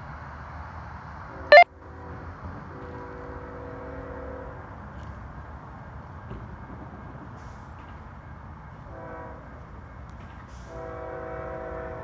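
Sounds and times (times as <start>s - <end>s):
distant locomotive horn blasts: 2.1s - 4.8s, 8.9s - 9.6s, 10.6s - 12.0s.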